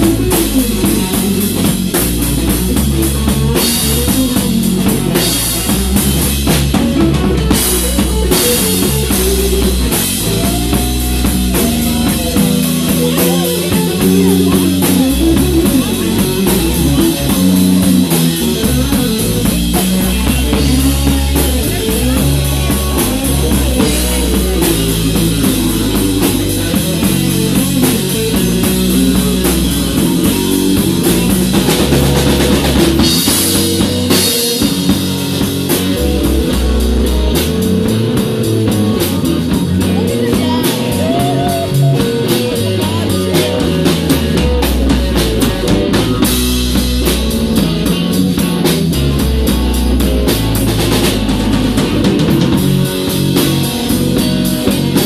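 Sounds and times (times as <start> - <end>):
bass guitar: 0.0 - 55.0
drum kit: 0.0 - 55.0
electric guitar lead lines: 0.0 - 55.0.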